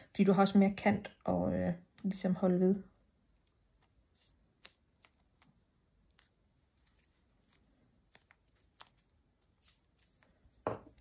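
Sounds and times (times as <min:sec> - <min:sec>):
fingers handling paper: 0:03.3 - 0:11.0.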